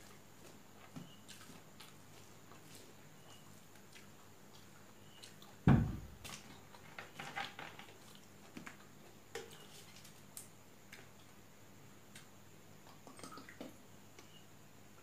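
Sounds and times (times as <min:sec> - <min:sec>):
chewing: 0:00.4 - 0:05.6
dull thump: 0:05.7 - 0:06.2.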